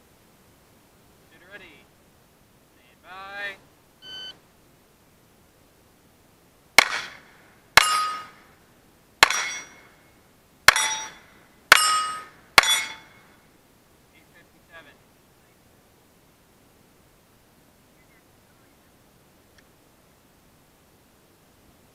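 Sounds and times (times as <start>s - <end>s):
pistol shots: 6.8s - 8.5s, 9.2s - 9.9s
steel plate ringing: 7.8s - 8.5s, 9.2s - 10.0s, 10.7s - 13.4s.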